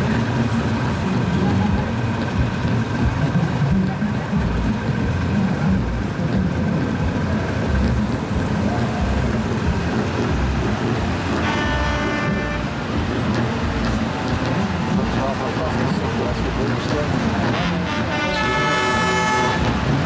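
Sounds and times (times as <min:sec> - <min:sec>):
truck engines rumbling: 0:00.0 - 0:20.0
truck horn: 0:09.0 - 0:20.0.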